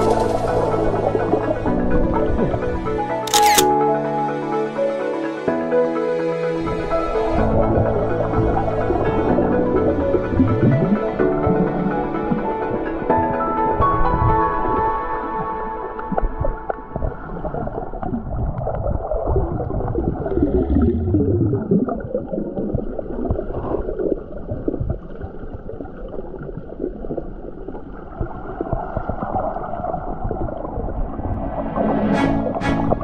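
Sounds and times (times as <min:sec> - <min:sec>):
underwater noise: 0:00.0 - 0:02.8, 0:06.7 - 0:33.0
ambient background music: 0:00.0 - 0:18.1, 0:31.0 - 0:33.0
short sharp clicks: 0:03.3 - 0:03.8.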